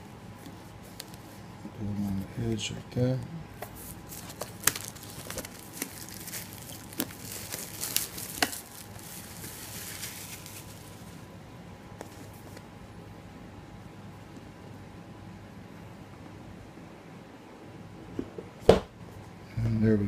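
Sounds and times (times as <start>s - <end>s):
plastic wrap crinkling: 3.8s - 11.3s.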